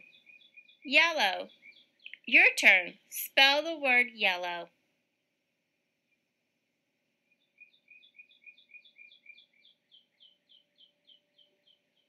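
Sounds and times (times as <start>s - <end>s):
bird chirping: 0.0s - 2.9s, 7.3s - 12.0s.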